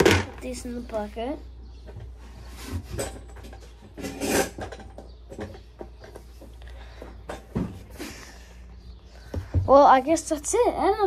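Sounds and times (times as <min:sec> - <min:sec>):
parts clattering: 0:01.9 - 0:08.4.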